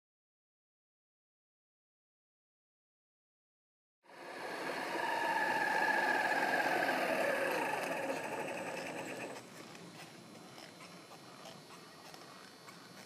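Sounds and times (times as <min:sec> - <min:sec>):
electric motor whine: 0:04.1 - 0:09.8.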